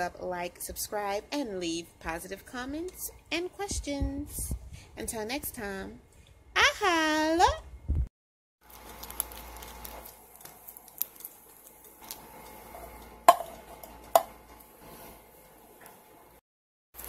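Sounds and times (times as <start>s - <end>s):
plastic bag rustling: 8.6s - 13.8s.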